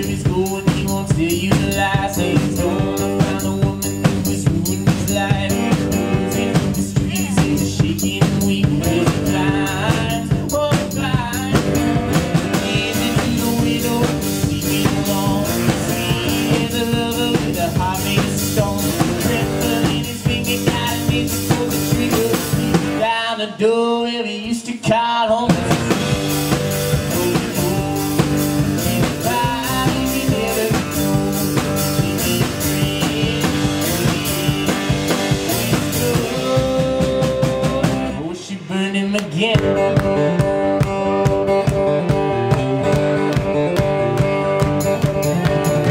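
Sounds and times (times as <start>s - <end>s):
drum kit beat: 0.0s - 23.1s, 25.4s - 38.2s, 39.4s - 45.9s
strummed acoustic guitar: 0.0s - 23.2s, 39.5s - 45.9s
person singing: 0.0s - 45.9s.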